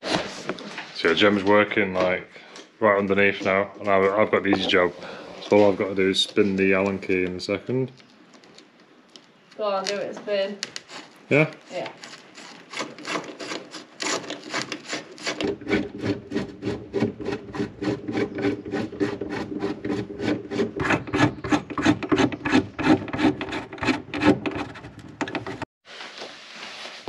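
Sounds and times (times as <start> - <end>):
screw squeaking as driven: 11.9 - 25.6.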